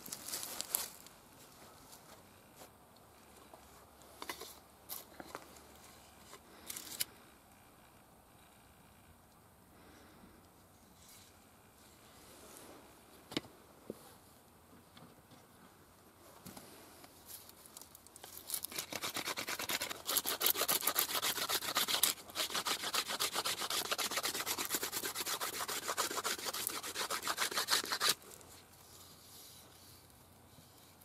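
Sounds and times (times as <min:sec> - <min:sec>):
stone rasping on wooden shaft: 0:18.6 - 0:28.2.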